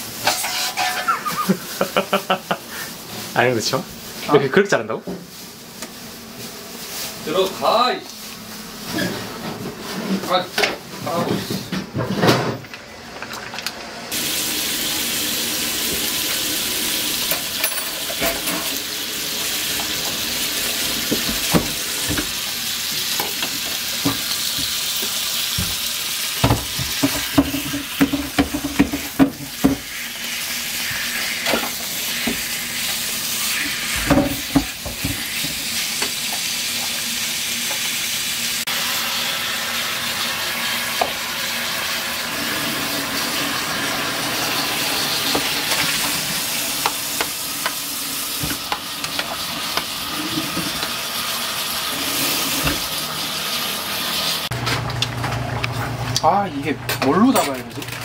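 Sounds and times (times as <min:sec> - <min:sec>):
meat sizzling in a pan: 0:00.0 - 0:04.2, 0:14.1 - 0:54.5
metal utensil scraping a pan: 0:00.2 - 0:01.2.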